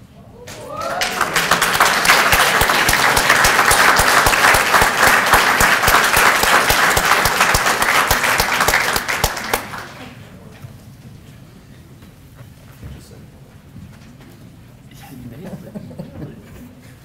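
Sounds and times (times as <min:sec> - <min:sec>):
audience applause: 0:00.5 - 0:10.2.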